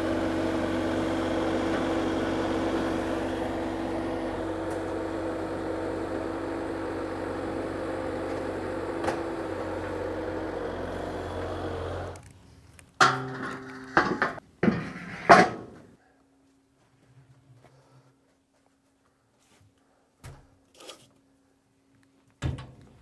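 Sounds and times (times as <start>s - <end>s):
loader engine running: 0.0s - 12.2s.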